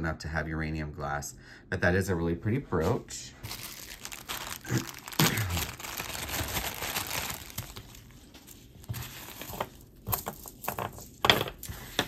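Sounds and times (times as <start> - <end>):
wrapping material crinkling: 3.4 - 12.0.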